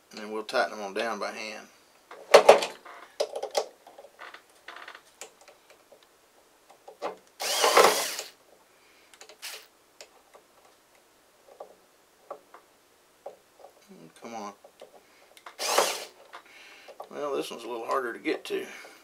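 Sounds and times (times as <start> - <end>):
cordless drill whine: 7.4 - 8.4, 9.4 - 9.7, 15.5 - 16.2.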